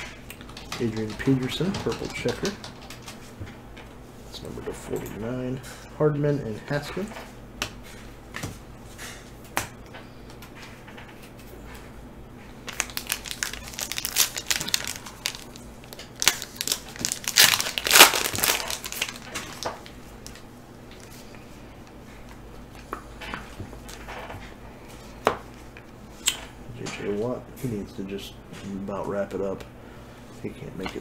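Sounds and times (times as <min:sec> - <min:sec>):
foil wrapper tearing and crinkling: 0:12.6 - 0:20.4.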